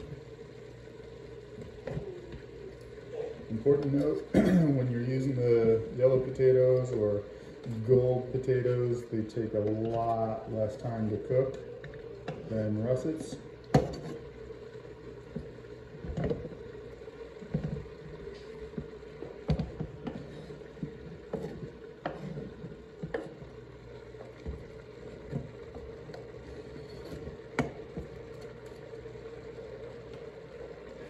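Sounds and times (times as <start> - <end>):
steady hum: 0.0 - 31.0
knife scraping cutting board: 20.1 - 23.4, 26.6 - 27.3.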